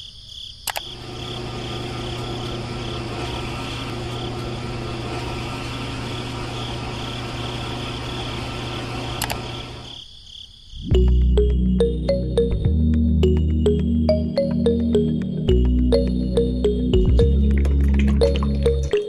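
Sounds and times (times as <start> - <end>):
small electric motor humming: 0.9 - 9.9.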